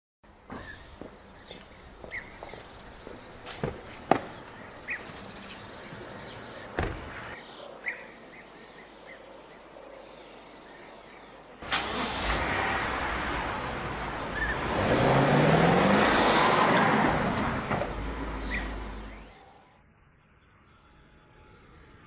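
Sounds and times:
small birds chirping: 0.3 - 11.6, 13.9 - 14.8, 17.9 - 21.1
car door shutting thump: 6.8 - 7.2.

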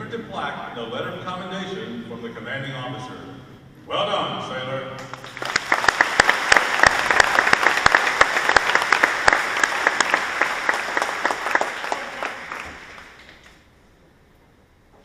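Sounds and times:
crowd applauding: 5.0 - 13.6
loud sharp claps nearby: 5.0 - 13.6.

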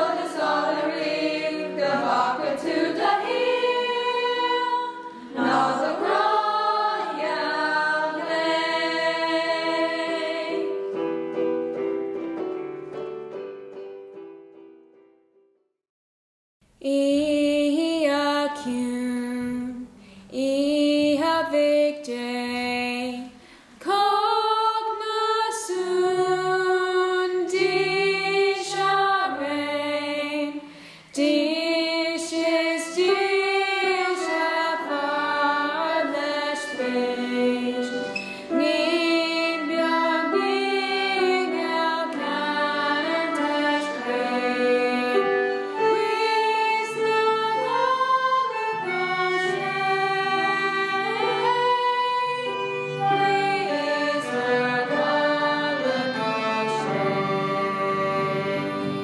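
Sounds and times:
voices and instruments: 0.0 - 11.1
young female voice singing: 16.8 - 30.6.

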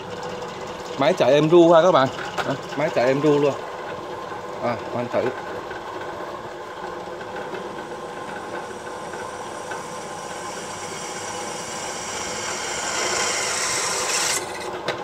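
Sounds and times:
drill press cutting steel: 7.4 - 14.7.

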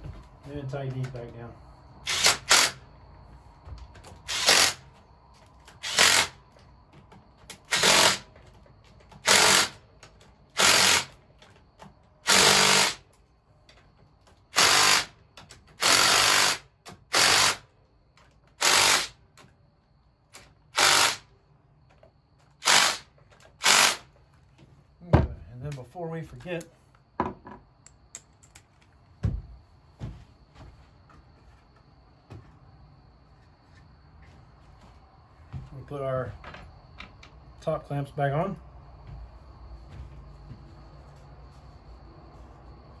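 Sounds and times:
impact driver bursts: 2.0 - 2.8, 4.3 - 4.9, 5.8 - 6.4, 7.6 - 8.3, 9.2 - 9.8, 10.5 - 11.2, 12.2 - 13.1, 14.5 - 17.7, 18.6 - 19.2, 20.7 - 21.3, 22.6 - 24.1.

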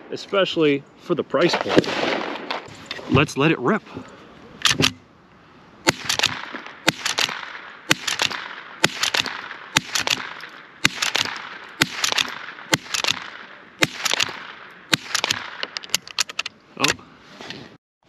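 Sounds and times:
rifle shots: 1.5 - 2.7, 5.8 - 16.4.

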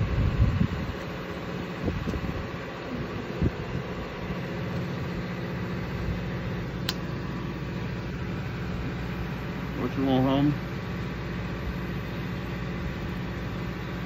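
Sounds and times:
boat engine idling: 0.8 - 14.0
sharp click: 6.8 - 7.1.

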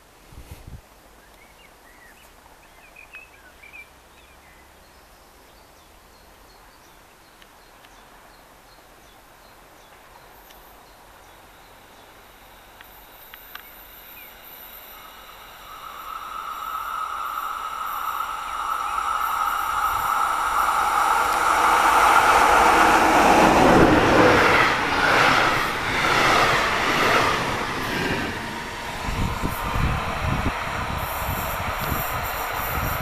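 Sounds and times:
approaching train running noise: 11.4 - 33.0
locomotive high whine: 11.7 - 33.0.

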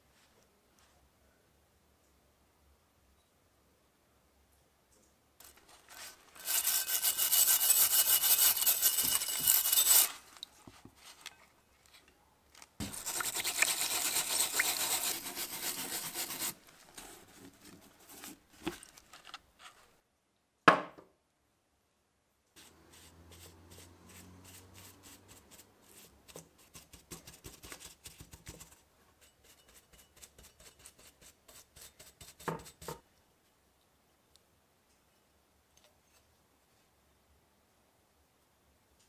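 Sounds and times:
wire brush scrubbing metal: 5.4 - 10.4, 12.8 - 17.0
bottle knocking on wooden bench: 20.7 - 21.0.

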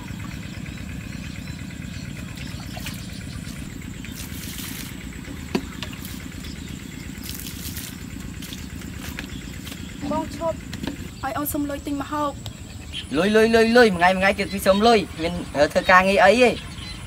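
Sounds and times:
steady low rumble: 0.0 - 17.0
water pouring and splashing: 2.4 - 5.0, 7.1 - 9.2.

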